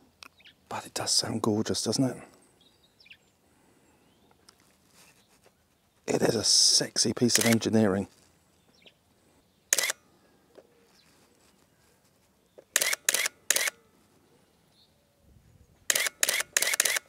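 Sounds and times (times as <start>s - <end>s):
camera shutter and motor drive clattering: 7.2s - 7.8s, 9.7s - 10.0s, 12.6s - 13.8s, 15.9s - 17.0s.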